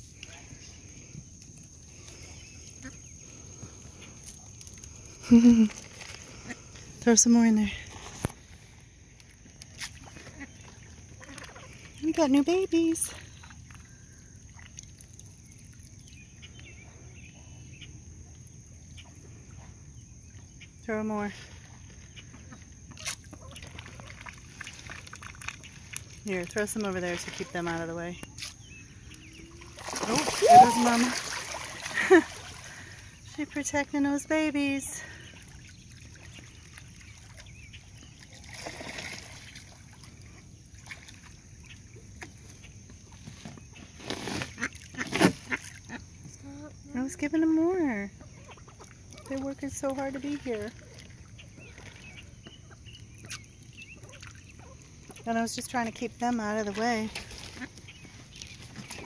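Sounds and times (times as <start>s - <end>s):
pond water lapping: 0.0s - 59.0s
small splashes: 12.8s - 16.2s, 22.4s - 33.6s, 35.0s - 42.5s, 48.5s - 55.2s, 55.8s - 59.0s.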